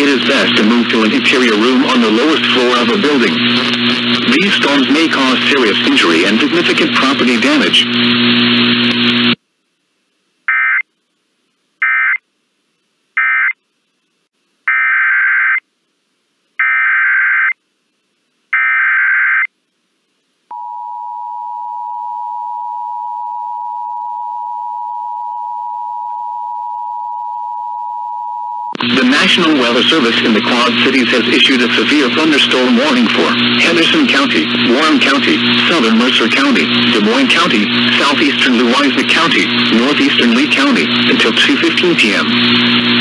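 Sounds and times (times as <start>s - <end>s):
steady single-pitch alarm tone: 20.5s - 28.8s.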